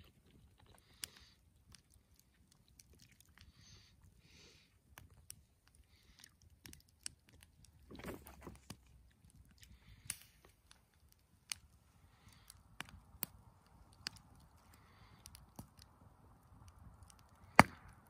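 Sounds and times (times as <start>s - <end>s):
campfire crackling and popping: 0.0s - 18.0s.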